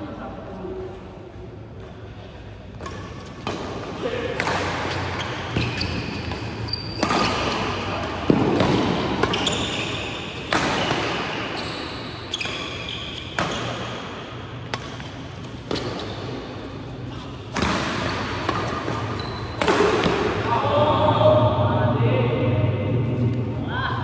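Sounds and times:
rackets striking shuttlecock: 0:02.8 - 0:11.5, 0:17.5 - 0:20.4
shoes squeaking on court floor: 0:02.8 - 0:20.1.

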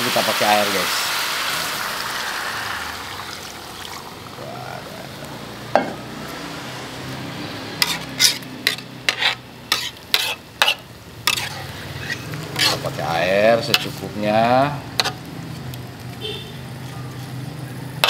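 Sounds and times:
water hissing in hot wok: 0:00.0 - 0:08.5
metal spatula knocking wok: 0:13.6 - 0:14.0.

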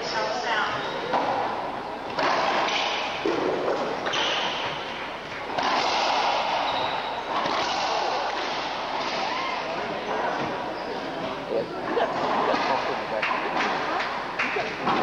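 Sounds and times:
racquetball hits echoing in court: 0:01.1 - 0:10.6.

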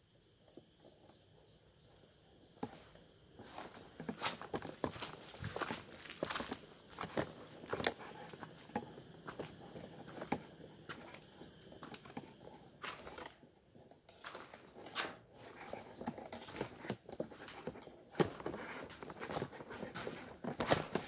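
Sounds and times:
leaves and twigs rustling: 0:03.4 - 0:10.3.

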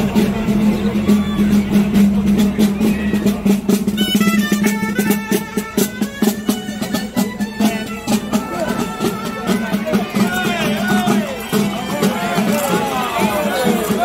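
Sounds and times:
drumbeats: 0:00.0 - 0:14.0
high piped melody: 0:02.8 - 0:14.0.

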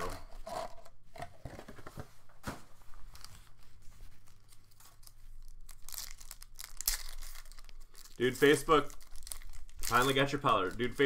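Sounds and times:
foil wrapper tearing and crinkling: 0:04.3 - 0:11.0.

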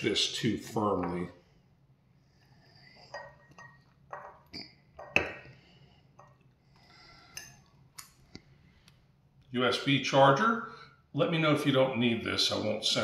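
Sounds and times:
glass jars clinking: 0:03.1 - 0:05.5.

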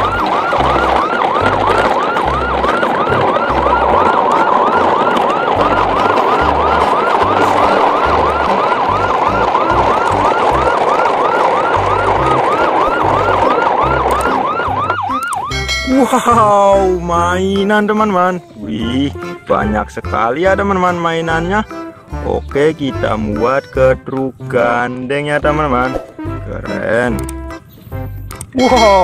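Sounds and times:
siren yelping: 0:00.0 - 0:16.7.

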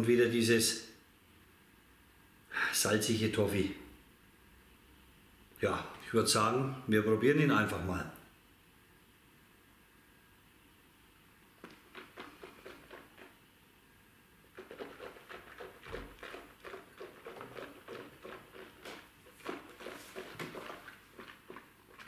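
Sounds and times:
wet lip-smacking and tongue clicks: 0:11.5 - 0:13.4, 0:14.4 - 0:22.0.

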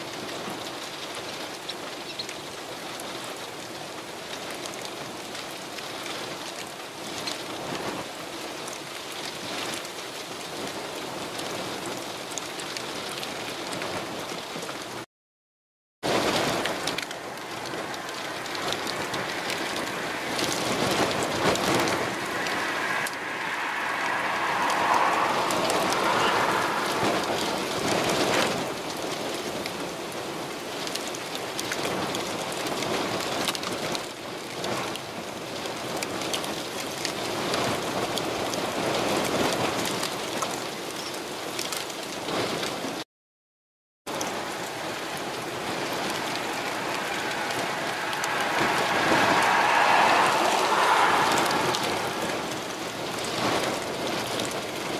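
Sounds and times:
heavy rain: 0:00.0 - 0:15.1, 0:16.0 - 0:43.0, 0:44.1 - 0:54.9
strong wind: 0:16.0 - 0:43.0, 0:44.1 - 0:54.9.

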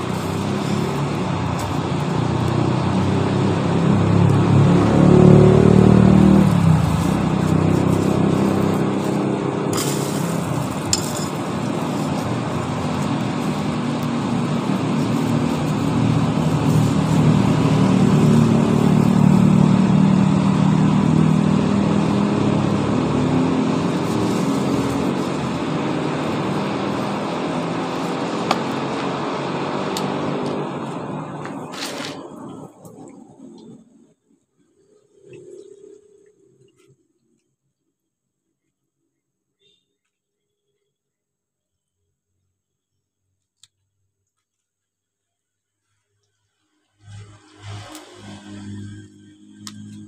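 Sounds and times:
air blower humming: 0:05.8 - 0:29.4.

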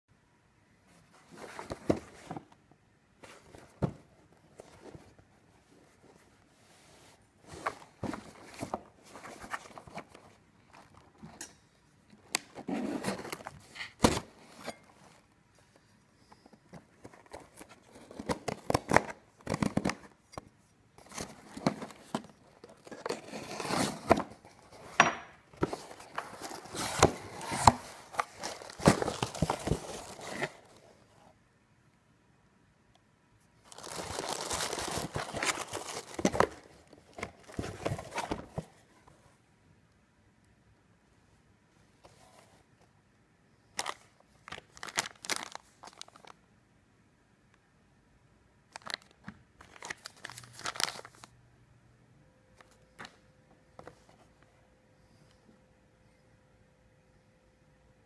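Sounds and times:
contents crinkling: 0:25.6 - 0:30.8, 0:33.6 - 0:38.6, 0:43.8 - 0:46.4, 0:48.7 - 0:51.3.

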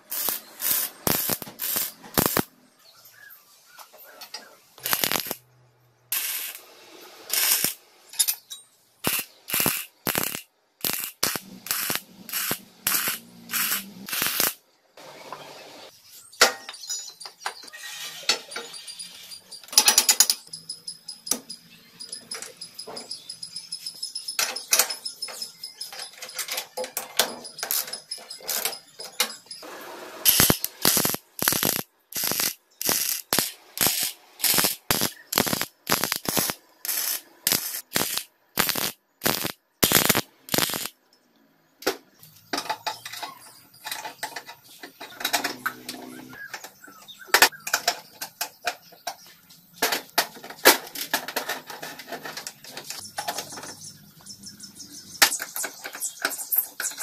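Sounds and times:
hand tools clicking on metal: 0:00.0 - 0:02.4, 0:04.3 - 0:05.4, 0:07.3 - 0:14.6, 0:24.4 - 0:29.5, 0:30.3 - 0:40.9
welding arc crackling: 0:00.0 - 0:02.5, 0:04.8 - 0:05.4, 0:06.1 - 0:07.8, 0:09.0 - 0:14.6, 0:27.6 - 0:28.7, 0:30.2 - 0:40.9
ratchet wrench clicking: 0:04.8 - 0:05.4, 0:07.3 - 0:07.8, 0:09.0 - 0:14.6, 0:30.3 - 0:40.9.

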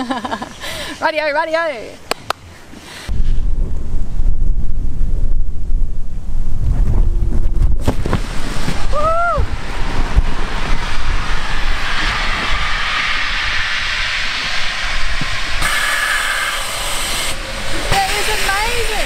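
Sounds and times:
gas hissing into liferaft: 0:10.1 - 0:19.0.

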